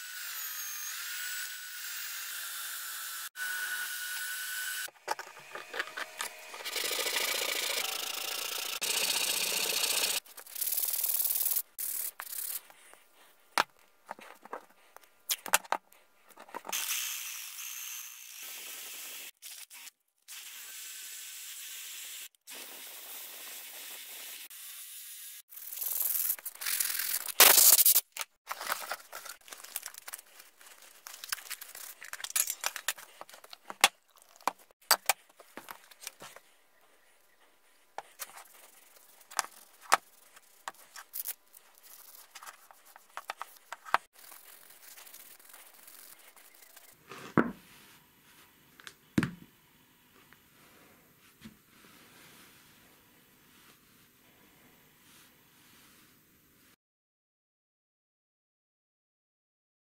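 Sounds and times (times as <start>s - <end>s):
drill sanding wood: 0.0s - 12.6s
hands rubbing wooden blocks: 28.5s - 48.0s.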